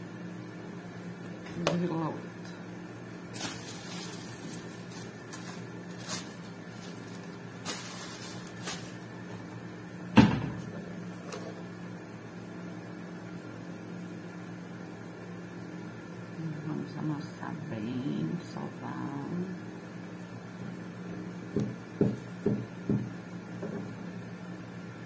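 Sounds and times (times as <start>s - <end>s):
steady low hum: 0.0s - 25.0s
loud knock: 10.2s - 10.6s.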